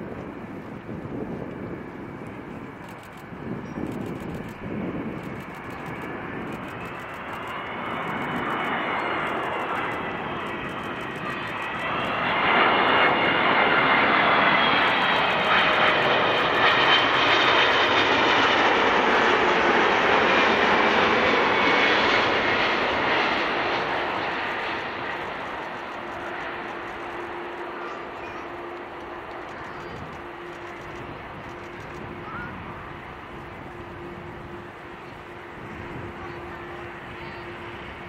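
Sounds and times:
jet airliner passing close: 0.0 - 38.0.

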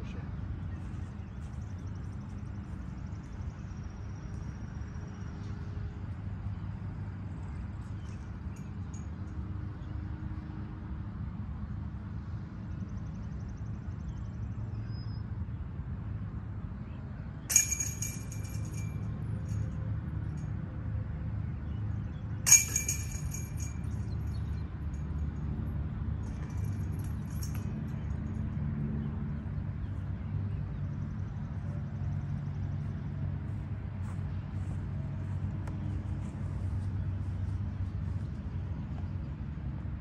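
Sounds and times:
metallic chain clanks: 17.5 - 19.8, 22.4 - 25.4, 26.2 - 28.5.

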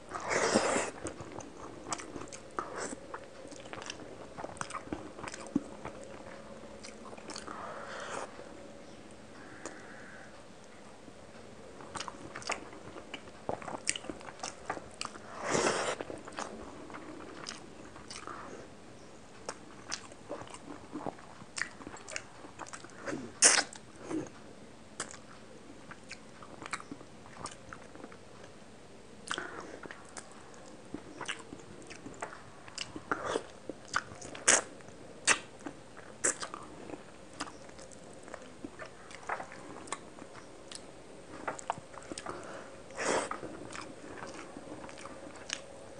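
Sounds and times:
chewing and mouth sounds: 0.1 - 7.6, 11.8 - 18.6, 19.4 - 24.4, 25.0 - 28.5, 29.2 - 45.9
mouth clicks and smacks: 21.6 - 23.8, 30.9 - 36.6.

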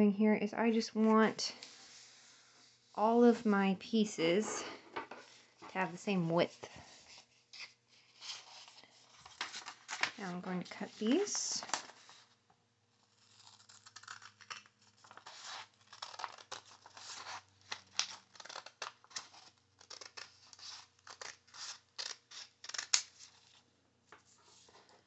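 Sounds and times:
scissors snipping paper: 13.1 - 23.4.

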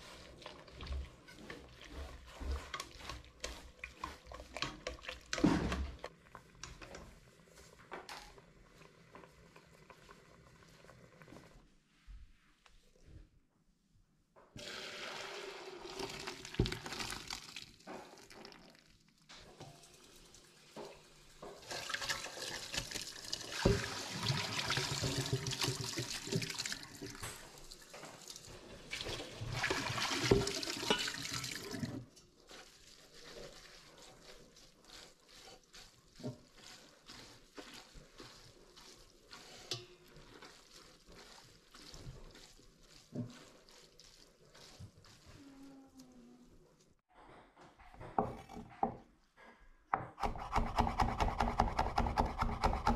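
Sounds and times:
wet noodles tossed in strainer: 0.0 - 10.1, 21.6 - 45.6
water poured through a strainer: 14.6 - 20.5, 21.6 - 45.5.

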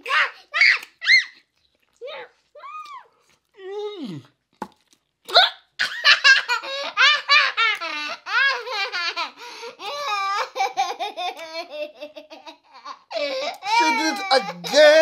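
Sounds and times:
young girl laughing: 5.3 - 15.0.

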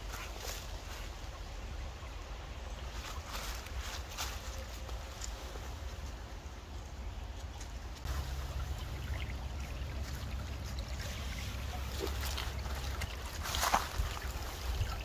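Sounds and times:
creek trickling over rocks: 0.0 - 15.0
low rumble: 8.0 - 15.0.

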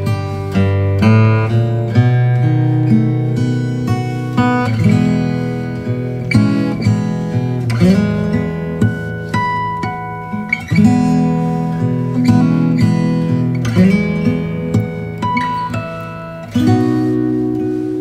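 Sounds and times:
acoustic guitar music: 0.0 - 18.0.

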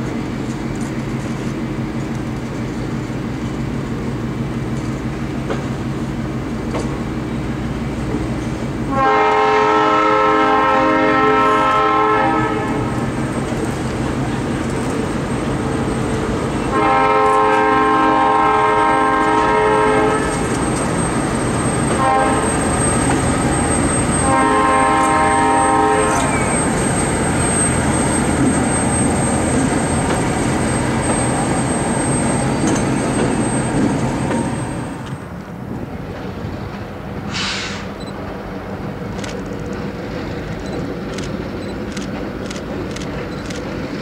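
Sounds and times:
train rumbling past: 0.0 - 44.0
locomotive horn blasts: 8.9 - 13.0, 16.6 - 20.5, 21.9 - 22.7, 24.2 - 26.6.

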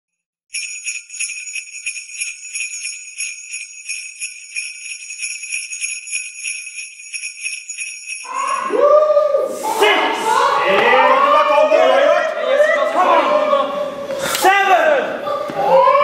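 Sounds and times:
sleigh bells jingling: 0.5 - 9.0.

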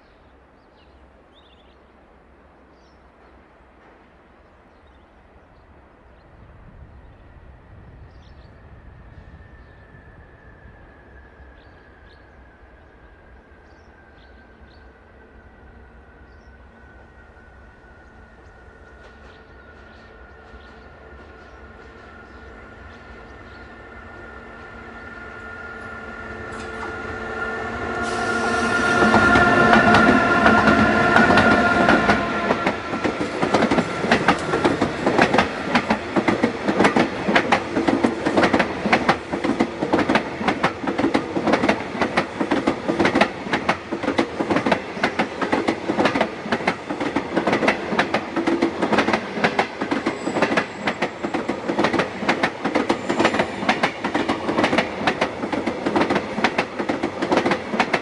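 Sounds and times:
train rumble: 2.0 - 58.0
electric locomotive whine: 5.2 - 58.0
wheels clacking over rail joints: 28.9 - 58.0.

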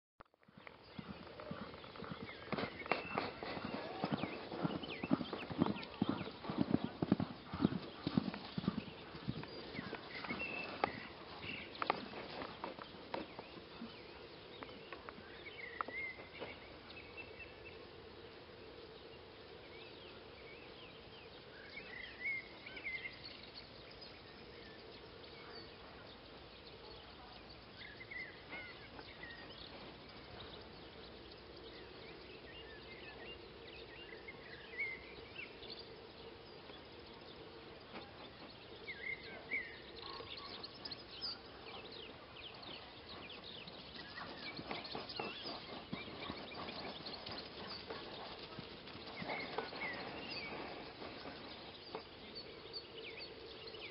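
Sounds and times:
horse hoofbeats cantering: 0.5 - 13.7, 42.6 - 52.1.

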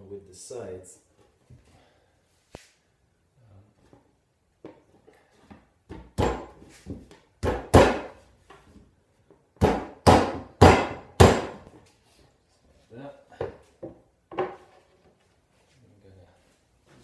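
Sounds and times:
sharp knocks on wood panel: 5.9 - 8.2, 9.6 - 11.6.

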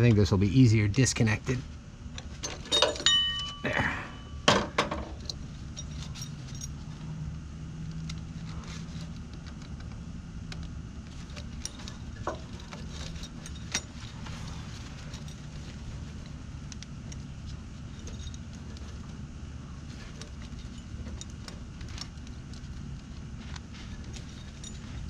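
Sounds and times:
metal hardware clinking: 2.1 - 7.1, 10.5 - 25.0.

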